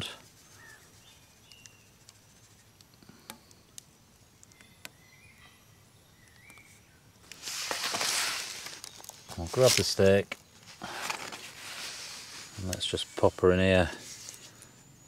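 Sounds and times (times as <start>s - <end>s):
faint bird chirps: 0.0s - 7.2s
loud rustling: 7.3s - 12.7s.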